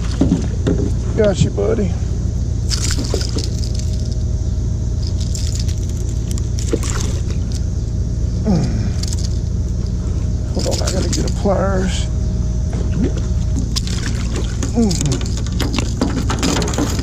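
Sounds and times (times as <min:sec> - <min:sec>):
steady low rumble: 0:00.0 - 0:17.0
fishing lure and grips rattling: 0:02.7 - 0:04.2, 0:05.0 - 0:07.7, 0:09.0 - 0:09.5, 0:10.5 - 0:11.5, 0:13.6 - 0:17.0.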